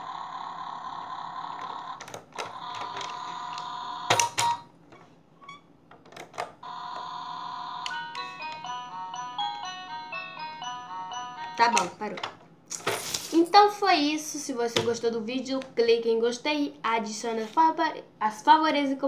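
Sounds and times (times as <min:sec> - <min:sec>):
toy electronic tone: 0:00.0 - 0:04.6, 0:06.6 - 0:12.0.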